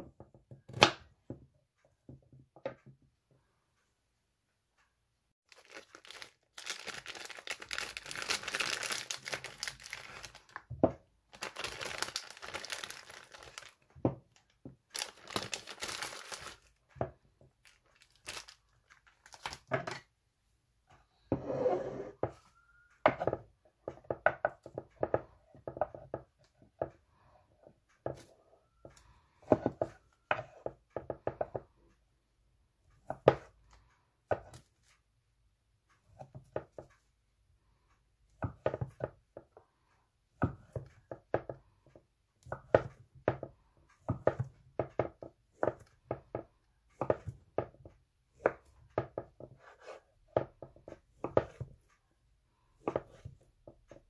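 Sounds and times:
knife slicing sausages on board: 48.4 - 51.8, 52.8 - 54.0.

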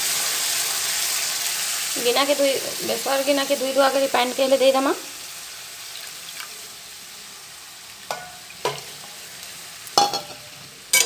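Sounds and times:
food sizzling in a pan: 0.0 - 11.0
metal spatula knocking on pan: 8.1 - 8.9, 10.0 - 10.4.

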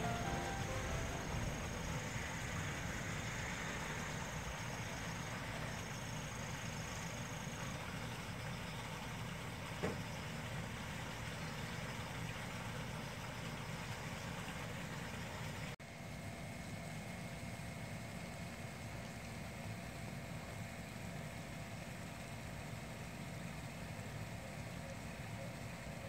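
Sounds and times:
faint steady whine: 0.0 - 8.8.

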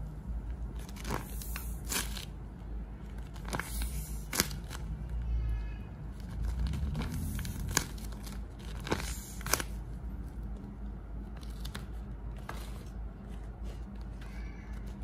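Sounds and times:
sharp paper crackles: 0.7 - 2.4, 3.0 - 5.0, 6.1 - 9.8, 11.2 - 15.0
paper crinkling: 6.1 - 15.0.

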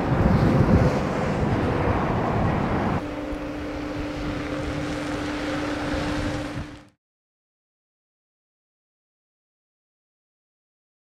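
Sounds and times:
steady low hum: 0.0 - 7.0
wind buffeting microphone: 0.0 - 7.0.

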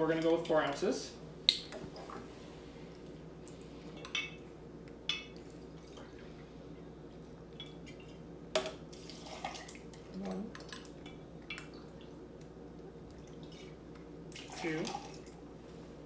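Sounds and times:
liquid trickling and dripping: 8.9 - 15.5.

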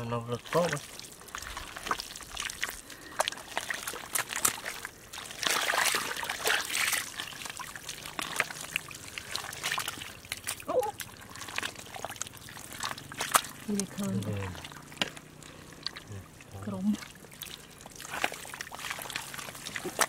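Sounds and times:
hands squelching through wet mud: 0.0 - 20.0
water trickling: 0.0 - 20.0.

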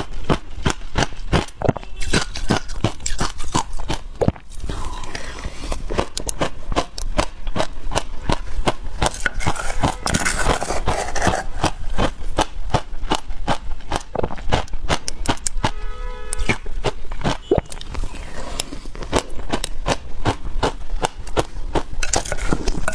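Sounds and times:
chewing and crunching ice: 0.0 - 22.9
metal spoon scraping ice: 1.8 - 3.9, 9.1 - 11.9, 22.0 - 22.9.

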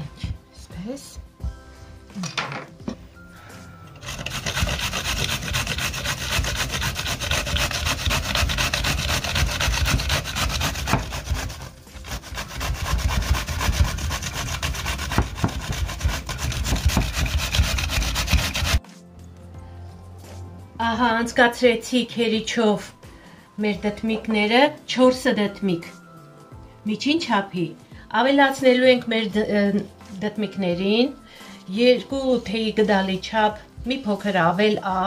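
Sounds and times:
zucchini grated on metal grater: 4.0 - 18.8.

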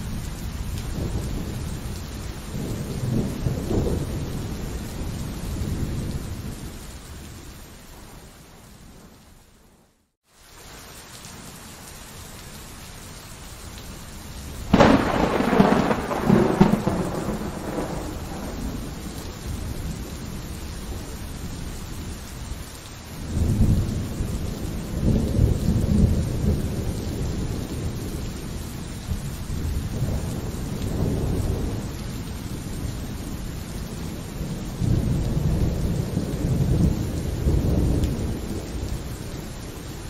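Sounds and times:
steady rain: 0.0 - 40.0
rolling thunder rumble: 0.7 - 6.8, 14.7 - 21.8, 23.3 - 39.6
sharp thunderclap: 14.7 - 20.0.

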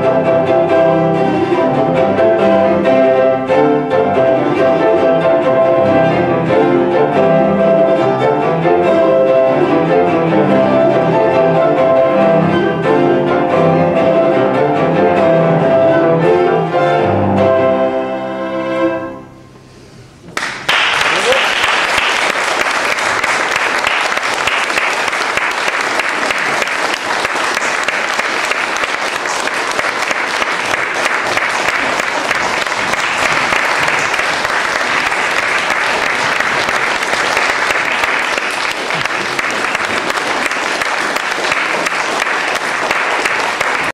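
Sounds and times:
audience applauding: 20.4 - 43.9.

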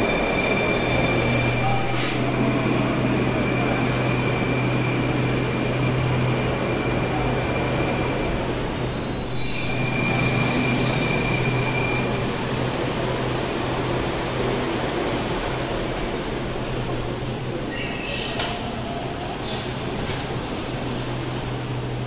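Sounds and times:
high-pitched squeal: 0.0 - 12.2.

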